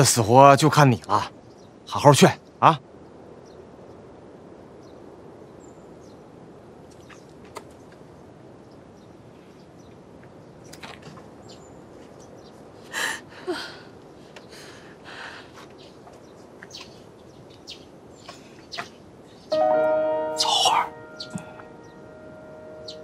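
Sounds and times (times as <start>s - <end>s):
low outdoor background: 0.0s - 23.0s
high bird chirps: 17.7s - 23.0s.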